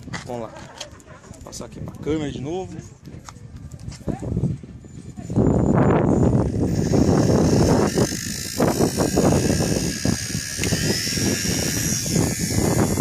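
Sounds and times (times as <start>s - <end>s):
gusty wind buffeting microphone: 0.0s - 13.0s
toy helicopter motor whine: 5.8s - 13.0s.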